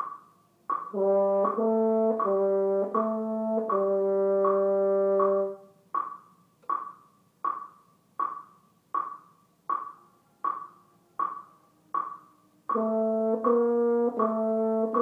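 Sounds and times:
metronome ticking: 0:00.0 - 0:15.0
french horn sustained notes: 0:01.0 - 0:05.7, 0:12.7 - 0:15.0.

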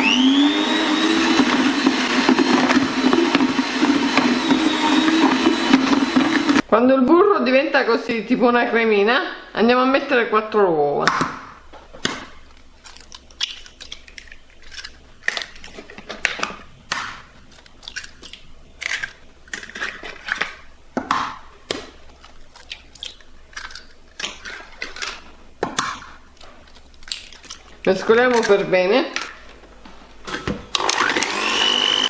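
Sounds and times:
eggshells cracking: 0:12.0 - 0:20.7, 0:21.6 - 0:28.6.

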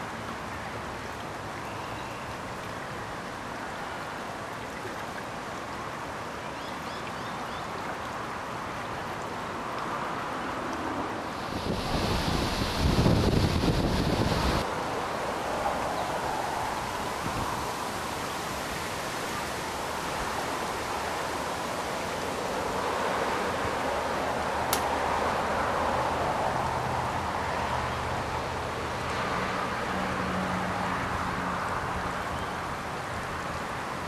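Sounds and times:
creek water rippling: 0:00.0 - 0:34.0
road traffic: 0:08.2 - 0:34.0
sharp click: 0:24.7 - 0:24.9.

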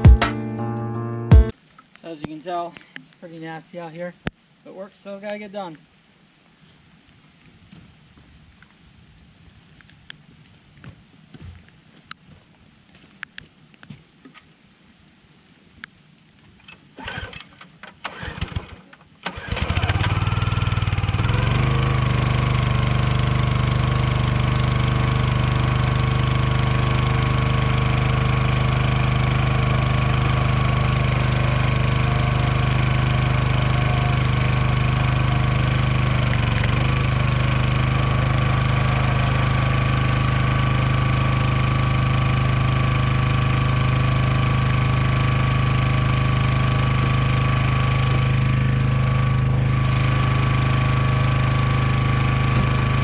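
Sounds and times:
small gas engine running: 0:17.0 - 0:53.0
starter cord tugs: 0:17.0 - 0:53.0.

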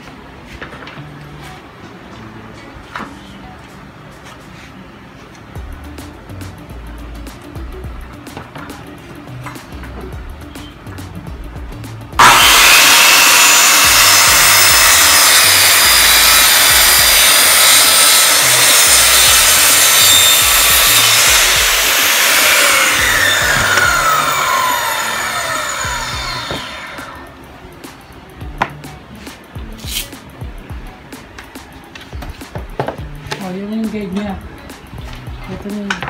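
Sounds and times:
circular saw cutting plywood: 0:12.2 - 0:27.3.

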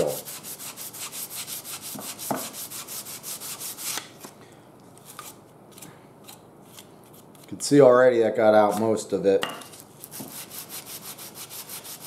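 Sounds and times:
sandpaper rubbing on metal: 0:00.0 - 0:04.0, 0:10.0 - 0:12.0.

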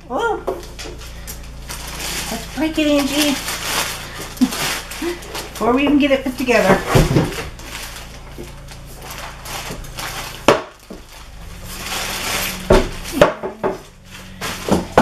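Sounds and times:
rustling: 0:00.5 - 0:15.0.

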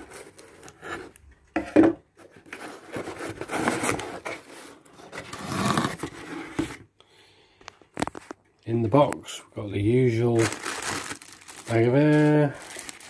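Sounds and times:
cardboard scraping and rustling: 0:00.0 - 0:06.9
cardboard tearing: 0:05.1 - 0:06.4, 0:10.4 - 0:13.0.

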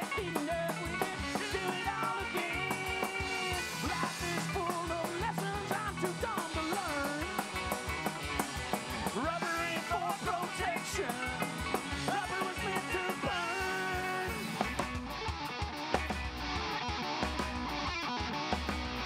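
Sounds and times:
drum kit beat: 0:00.0 - 0:19.0
electric guitars: 0:00.0 - 0:19.0.

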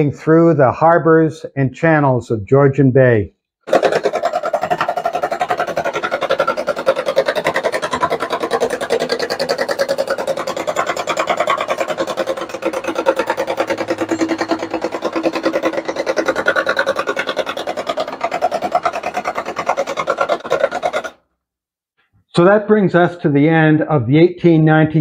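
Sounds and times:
rapid even chuffing: 0:03.7 - 0:21.2.

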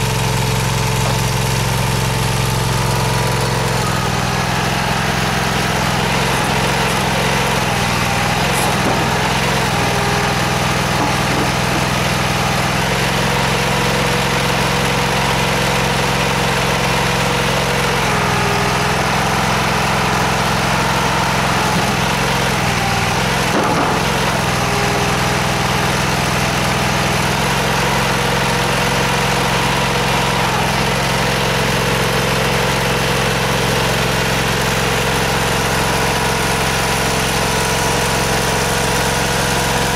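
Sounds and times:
stone splitter engine running: 0:00.0 - 0:39.9
knock: 0:11.0 - 0:11.9.

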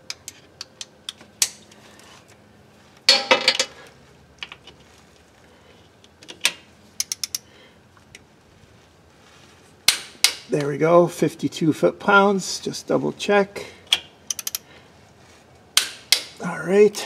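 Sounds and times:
metal tool clatter: 0:03.1 - 0:03.8
torque wrench clicks: 0:07.0 - 0:07.5, 0:13.9 - 0:14.6.

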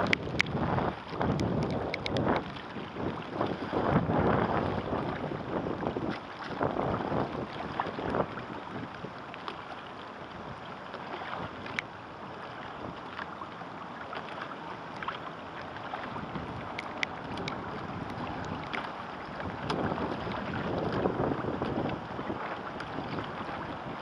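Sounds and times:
wind buffeting microphone: 0:00.0 - 0:09.2, 0:15.7 - 0:24.0
water splashing against hull: 0:00.0 - 0:24.0.

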